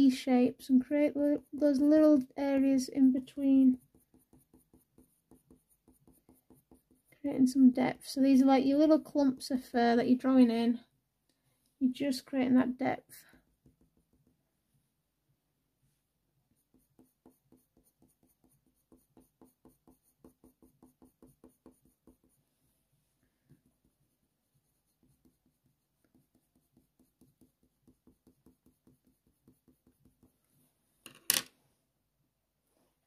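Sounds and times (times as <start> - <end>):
pencil scratching on paper: 0.3 - 9.6, 13.1 - 14.4, 16.5 - 22.6, 23.5 - 30.5.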